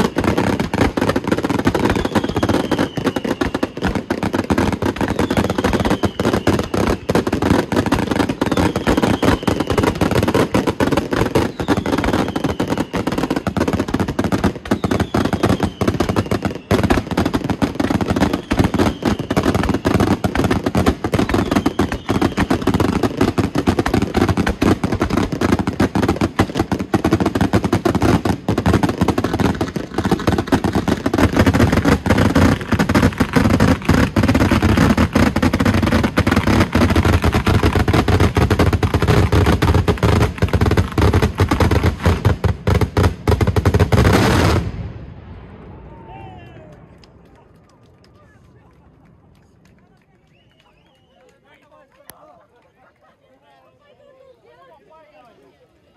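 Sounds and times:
fireworks bangs and crackling: 0.0 - 51.3
falling whistle: 50.3 - 51.3.

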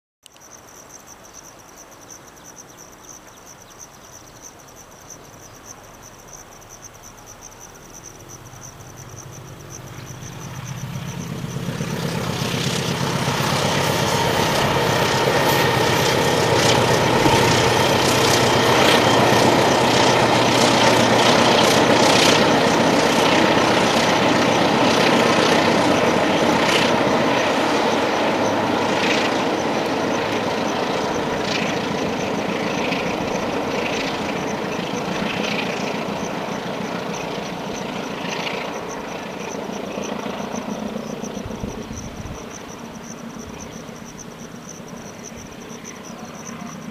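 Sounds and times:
high insect buzz: 0.2 - 46.9
diesel locomotive engine hum: 8.3 - 46.9
train wheels clattering on rails: 11.0 - 30.4.

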